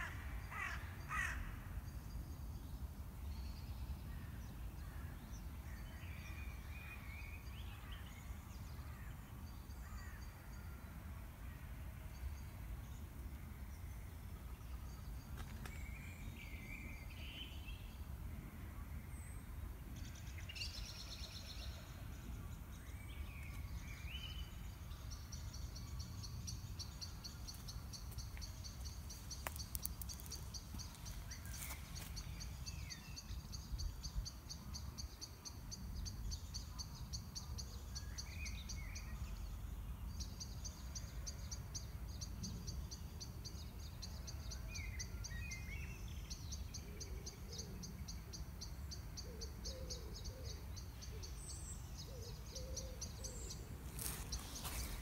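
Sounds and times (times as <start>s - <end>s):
small birds chirping: 23.1s - 34.4s, 48.9s - 55.0s.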